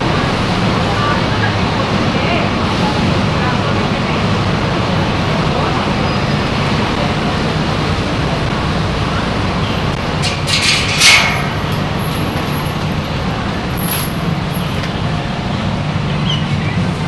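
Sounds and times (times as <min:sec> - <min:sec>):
engine drone: 0:00.0 - 0:17.0
urban traffic noise: 0:00.0 - 0:17.0.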